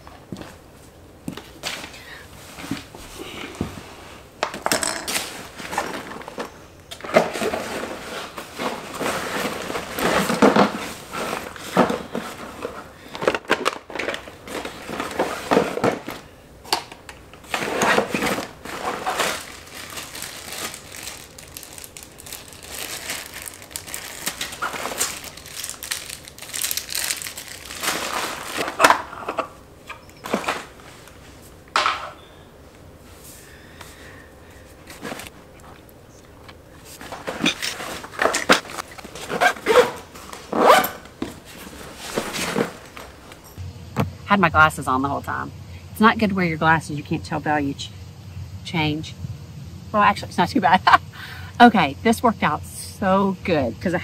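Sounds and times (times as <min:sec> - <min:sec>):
plastic boxes clattering: 0:04.4 - 0:31.0, 0:36.9 - 0:43.5.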